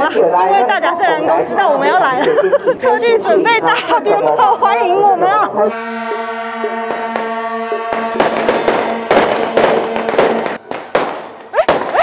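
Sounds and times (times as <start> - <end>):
long horns holding a note: 5.6 - 10.6
firecrackers crackling: 6.8 - 12.0.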